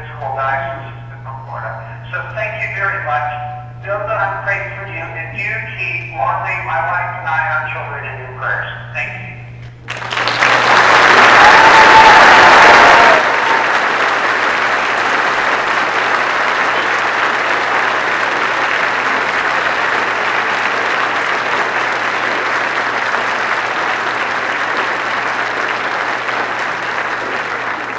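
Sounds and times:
large crowd applauding: 0:09.9 - 0:27.9.

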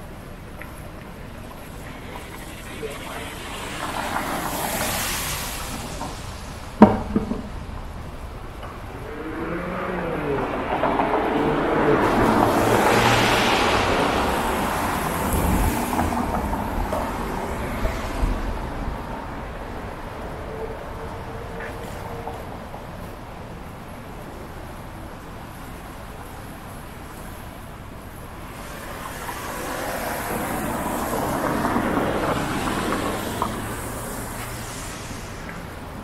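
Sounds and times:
car tyres hissing on wet road: 0:00.0 - 0:06.9, 0:09.4 - 0:20.3, 0:26.4 - 0:36.0.

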